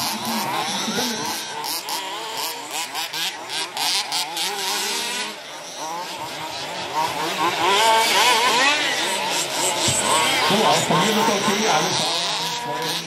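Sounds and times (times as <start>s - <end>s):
rc buggy motors whining: 0.0s - 13.0s.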